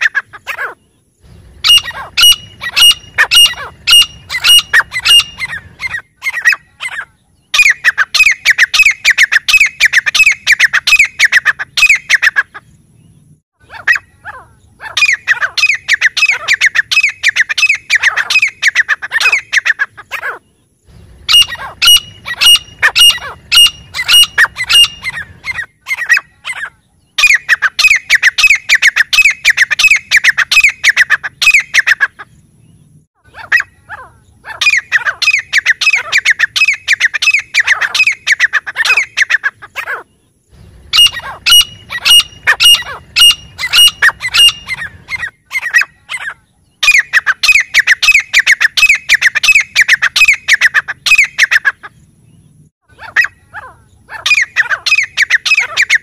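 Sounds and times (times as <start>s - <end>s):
francolin calling: 0.0s - 56.0s.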